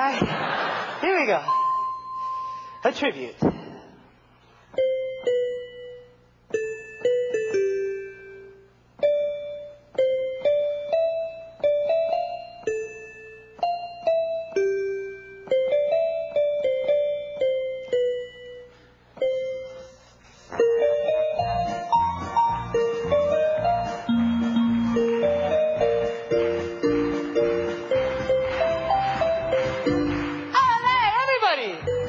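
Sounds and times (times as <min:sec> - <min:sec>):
electronic keyboard piano notes: 0:04.7 - 0:32.0.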